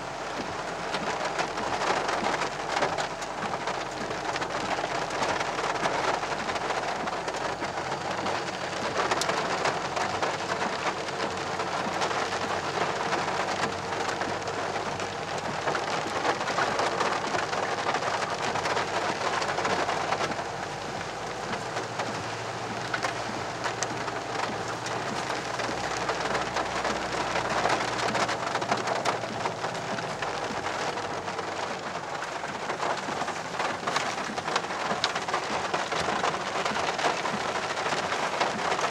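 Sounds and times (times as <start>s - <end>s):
low vehicle rumble: 0.0s - 38.9s
rain drumming on car roof: 0.0s - 38.9s.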